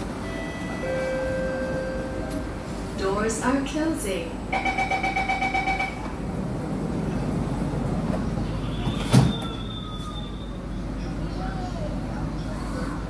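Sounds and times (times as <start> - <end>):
stationary train hum: 0.0 - 13.0
door warning beeps: 4.5 - 6.1, 8.8 - 10.6.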